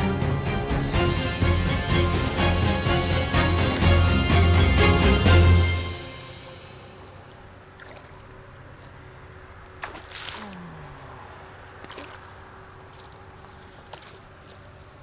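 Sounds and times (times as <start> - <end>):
water splashing: 7.1 - 15.0.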